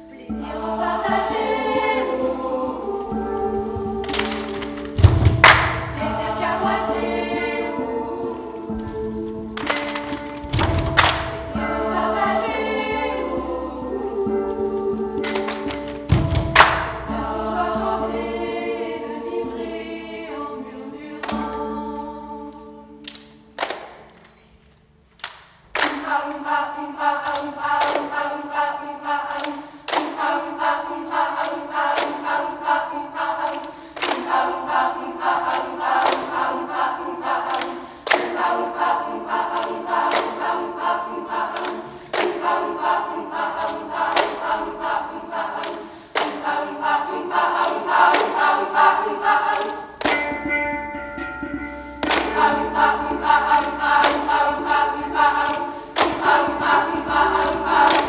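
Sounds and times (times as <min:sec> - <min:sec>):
choir singing held chords: 0:00.0 - 0:58.0
sharp percussive hits: 0:04.0 - 0:06.9, 0:09.5 - 0:12.5, 0:15.2 - 0:17.4, 0:49.6 - 0:58.0.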